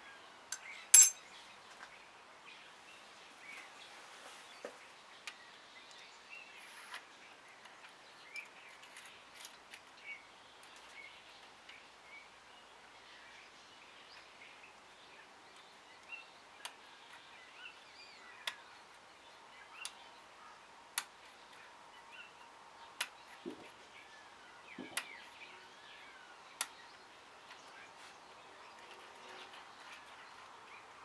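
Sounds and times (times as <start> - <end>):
lock pick metallic clicks: 1.0 - 1.2.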